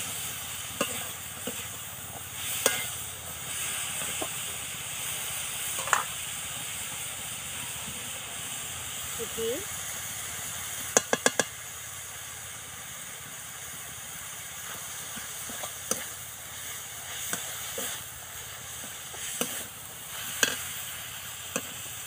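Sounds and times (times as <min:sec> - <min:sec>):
vegetables sizzling in a pan: 0:00.0 - 0:22.0
metal spatula clinking on pan: 0:02.6 - 0:02.9.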